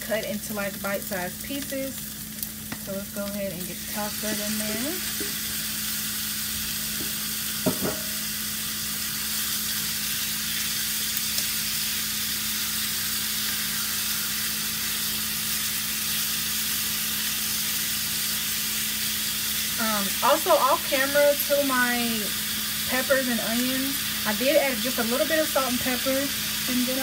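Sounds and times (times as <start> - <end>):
low steady hum: 0.0 - 8.4
chicken sizzling in hot oil: 0.0 - 27.0.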